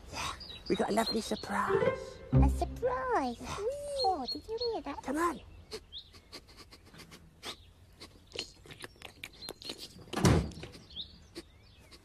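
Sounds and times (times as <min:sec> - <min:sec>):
faint bird chirps: 0:03.1 - 0:12.0.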